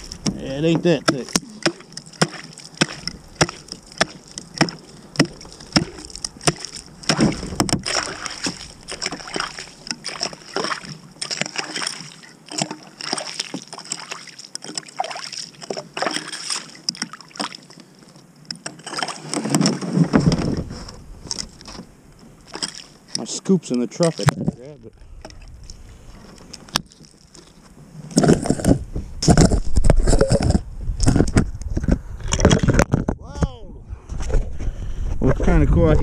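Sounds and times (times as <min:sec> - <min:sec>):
water splashing: 0:00.0 - 0:28.7
hatchet chopping ice: 0:01.0 - 0:09.1.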